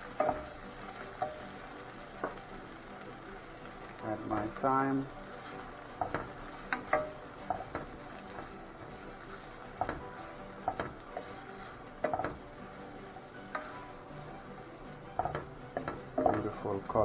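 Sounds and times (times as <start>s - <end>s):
wooden spoon knocking on metal pan: 0.2s - 0.6s, 6.0s - 8.0s, 9.8s - 11.3s, 12.0s - 12.4s, 15.2s - 16.6s.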